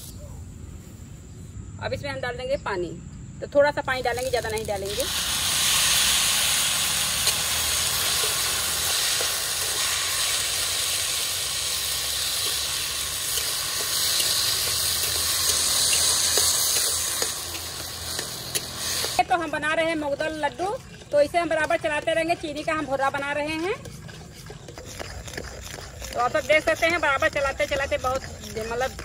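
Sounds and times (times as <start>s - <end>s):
water pouring onto sugar: 4.5s - 18.0s.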